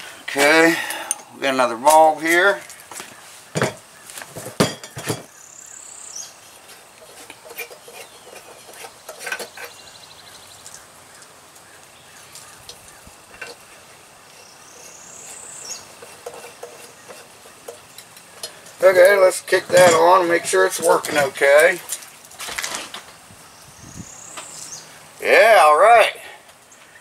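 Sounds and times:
glass and metal clinking: 0:04.4 - 0:05.3, 0:19.5 - 0:21.5.

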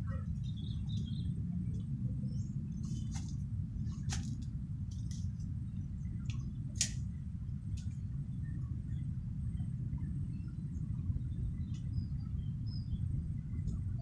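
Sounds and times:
steady low rumble: 0:00.0 - 0:14.0
branches rustling and snapping: 0:02.8 - 0:05.5, 0:06.3 - 0:07.0.

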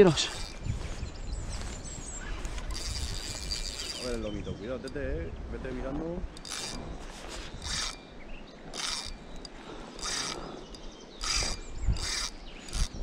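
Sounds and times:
fishing reel ratcheting: 0:00.0 - 0:00.6, 0:02.6 - 0:05.0, 0:06.3 - 0:08.0, 0:08.7 - 0:13.0.

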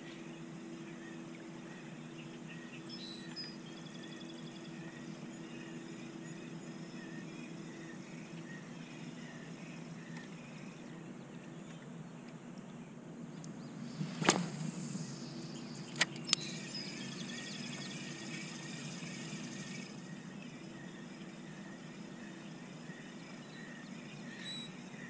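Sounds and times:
faint chirping: 0:00.0 - 0:25.0
fishing rod swish: 0:14.0 - 0:15.0.

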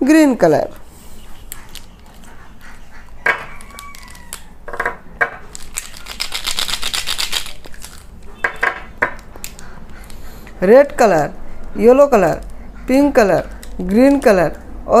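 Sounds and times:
plastic pens clicking and rattling: 0:01.5 - 0:02.3, 0:03.3 - 0:08.2, 0:09.0 - 0:10.6, 0:11.6 - 0:14.6.

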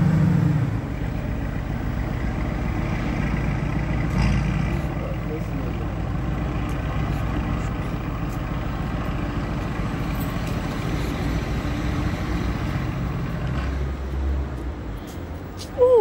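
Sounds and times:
car engine idling: 0:00.0 - 0:10.8.

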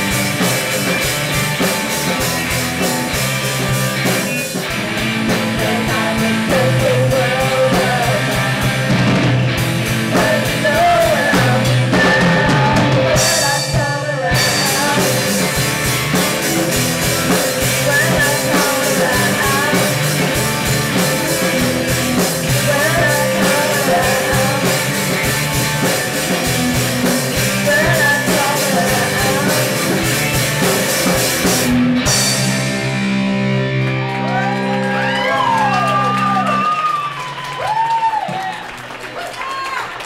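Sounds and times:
bass guitar: 0:00.0 - 0:39.6
drum kit: 0:00.0 - 0:39.7
electric guitar: 0:00.0 - 0:40.0
girl singing lead vocal: 0:05.3 - 0:09.1, 0:10.0 - 0:15.6, 0:17.6 - 0:25.2, 0:27.4 - 0:30.2.

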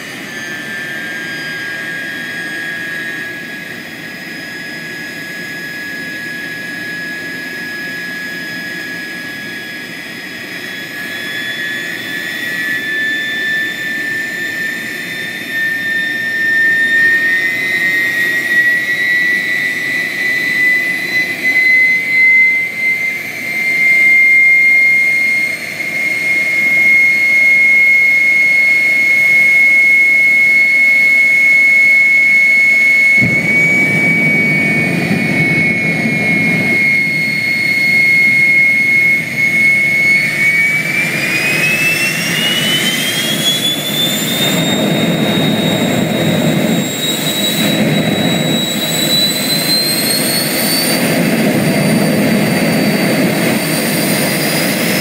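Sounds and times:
gas turbine whine: 0:00.0 - 0:55.0
deep rumble: 0:33.2 - 0:38.6.

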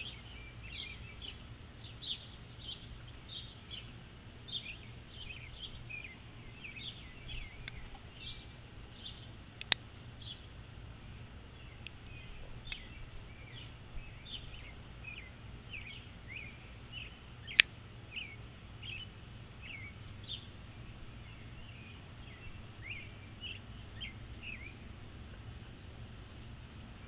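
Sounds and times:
small birds chirping: 0:00.0 - 0:27.0
steady low hum: 0:00.0 - 0:27.0
metallic knife clicks: 0:09.0 - 0:09.8, 0:11.8 - 0:13.0.

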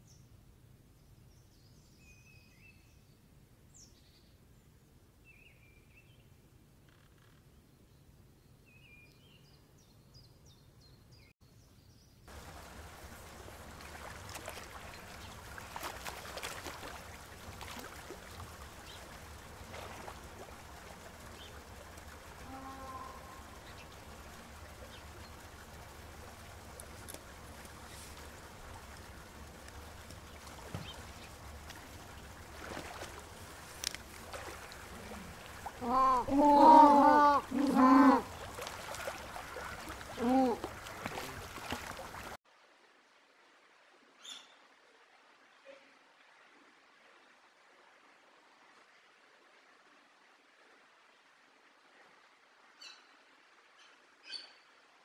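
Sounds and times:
water noise from pool: 0:12.3 - 0:55.0.

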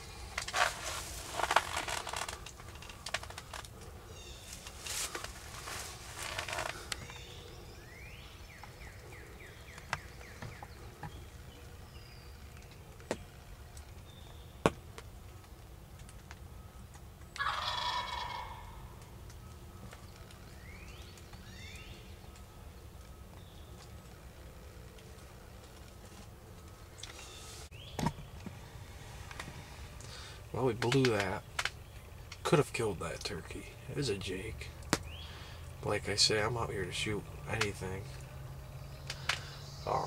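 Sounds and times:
turkey gobbling: 0:17.4 - 0:19.1.

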